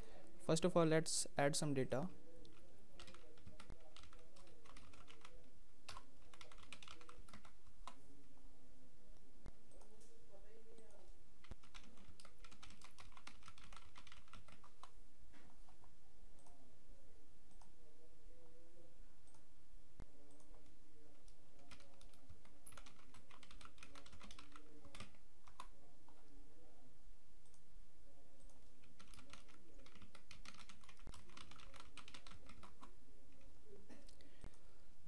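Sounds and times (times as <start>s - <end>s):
computer keyboard typing: 2.4s - 8.0s, 10.8s - 15.0s, 20.3s - 26.2s, 28.4s - 33.5s.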